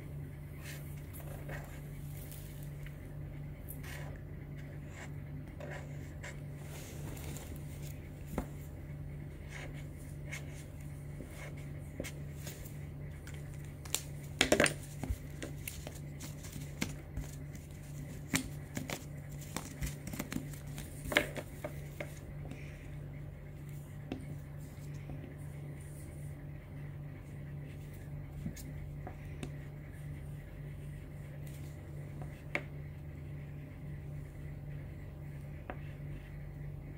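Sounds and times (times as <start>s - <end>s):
steady low hum: 0.0s - 36.9s
pens tapping and clicking: 13.3s - 15.6s.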